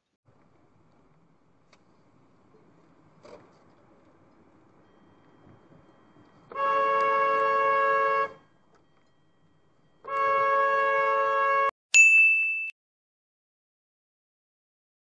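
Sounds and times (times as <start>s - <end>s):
car horn honking: 6.5s - 8.5s, 10.0s - 11.7s
sharp bright ding: 12.0s - 12.8s.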